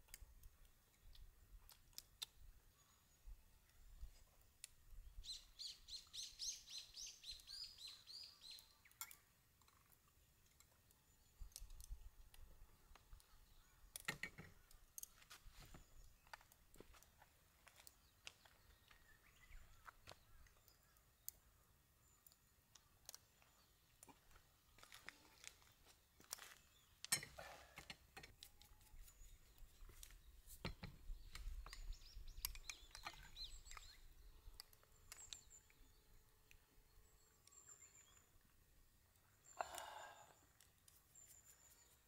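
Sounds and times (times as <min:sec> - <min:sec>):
faint bird chirps: 0:02.0 - 0:10.0, 0:28.4 - 0:38.5, 0:39.1 - 0:42.0.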